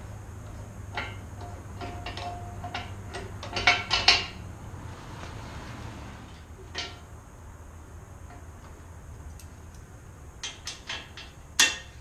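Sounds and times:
low steady hum: 0.0 - 12.0
metallic ring: 0.9 - 4.4
steel clinks and clanks: 0.9 - 4.4, 6.3 - 7.1, 10.4 - 12.0.

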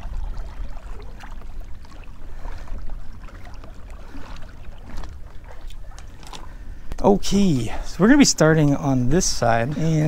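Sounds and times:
water splashing against kayak hull: 0.0 - 6.9.

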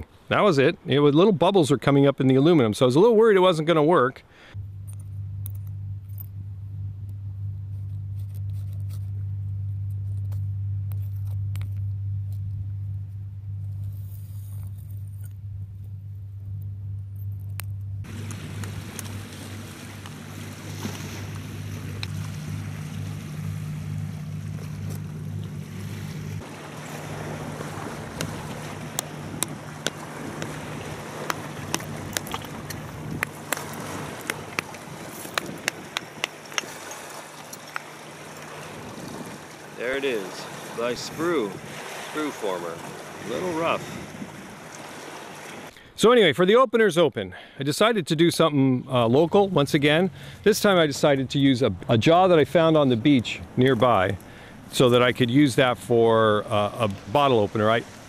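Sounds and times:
low motor-like hum: 4.5 - 45.7
wind noise: 18.0 - 37.2, 38.5 - 39.7, 43.3 - 45.7
waves washing on rocky shore: 18.1 - 45.7.

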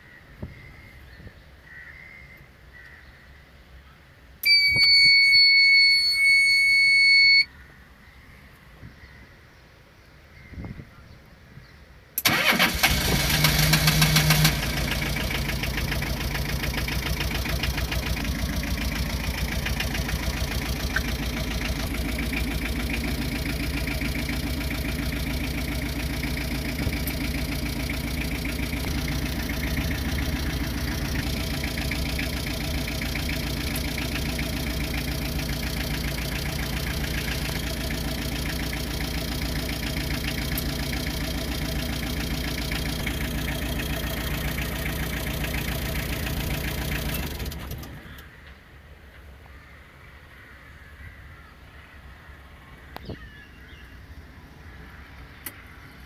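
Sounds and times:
truck engine idling: 4.4 - 7.5, 12.2 - 48.5
starter motor cranking: 12.2 - 48.2.

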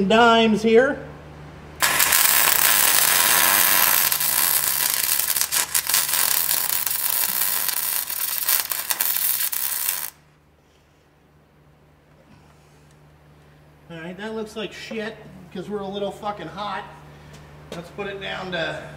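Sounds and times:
welding arc crackling hiss: 1.8 - 10.3.

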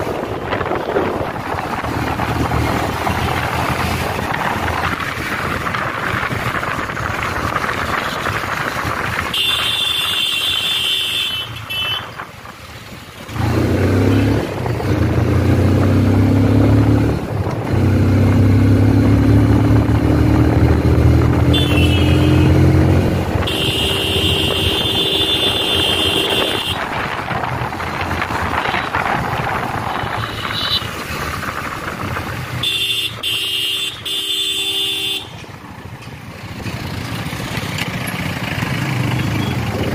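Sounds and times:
wind rushing over microphone: 0.0 - 9.7, 12.0 - 21.6, 22.4 - 32.6, 39.6 - 39.9
motorcycle engine revving: 0.0 - 11.1, 13.2 - 34.9, 36.4 - 39.9
vehicle horns honking: 9.3 - 12.2, 21.4 - 22.8, 23.4 - 26.8, 29.9 - 30.9, 32.6 - 35.4.

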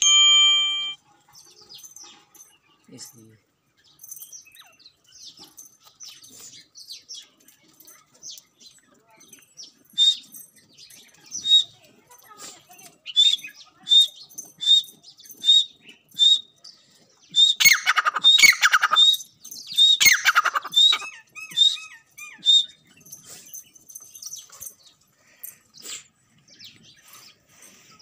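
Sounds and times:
francolins calling: 13.0 - 26.0.

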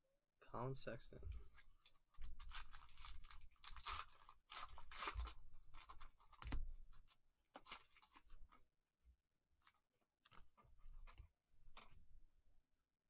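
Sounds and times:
foil wrapper crinkling and tearing: 1.8 - 8.4.

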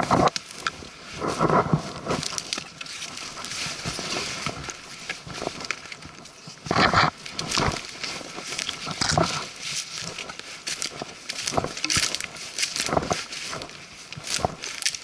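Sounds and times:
trekking pole striking ground: 0.0 - 5.8, 6.6 - 15.0
footsteps crunching dry leaves: 0.0 - 15.0.

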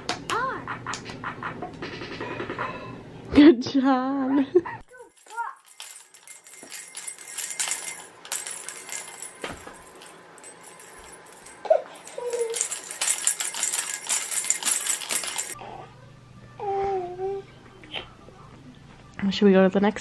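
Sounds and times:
plastic ball rattle shaking: 4.9 - 15.6.

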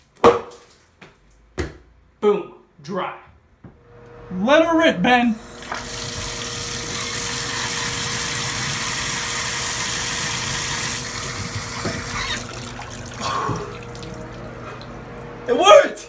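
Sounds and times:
water pouring from faucet: 5.6 - 15.4.

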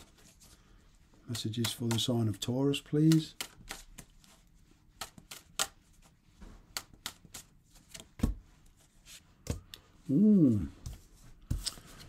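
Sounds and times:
cards being shuffled: 1.3 - 9.7, 10.8 - 12.0.

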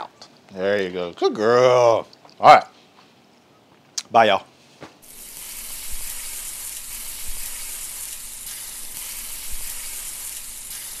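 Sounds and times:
food sizzling: 5.0 - 11.0.

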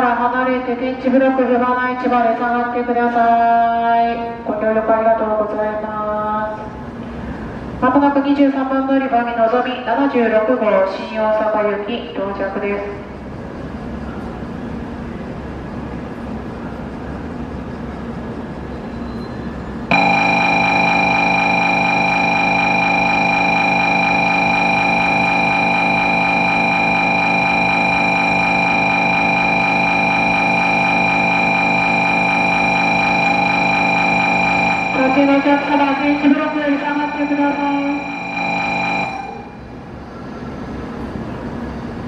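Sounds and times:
steady background hum: 0.0 - 42.0
electronic multi-pitch tone: 19.9 - 39.6.

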